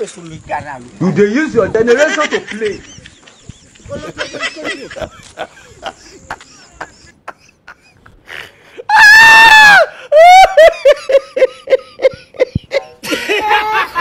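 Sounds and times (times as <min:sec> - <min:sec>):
high-pitched scream: 0:08.9 - 0:10.6.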